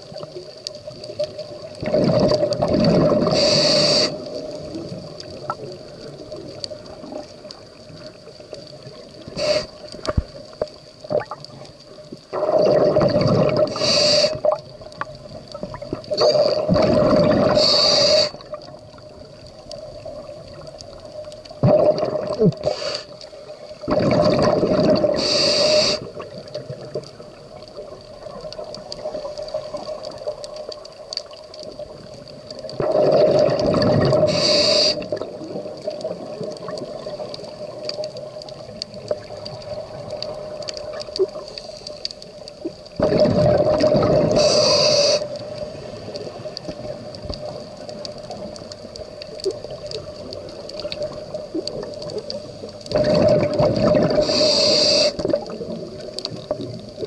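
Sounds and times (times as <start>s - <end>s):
diver exhaling bubbles underwater: 1.8s - 5.6s, 12.3s - 14.6s, 15.7s - 18.6s, 21.6s - 22.8s, 23.9s - 27.0s, 32.7s - 37.8s, 43.0s - 45.2s, 52.9s - 56.8s.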